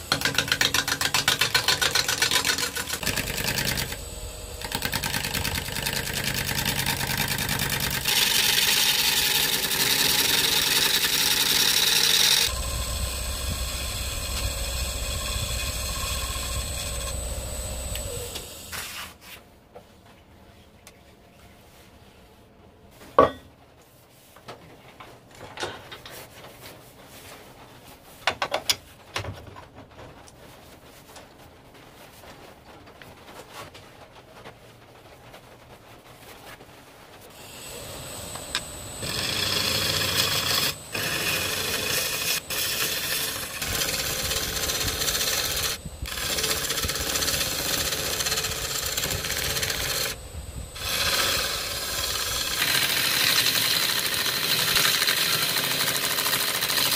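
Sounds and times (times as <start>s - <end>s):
gouge cutting spinning log: 0.0s - 18.7s, 37.3s - 56.9s
faint high whine: 3.1s - 8.5s, 9.4s - 19.2s, 37.3s - 54.7s.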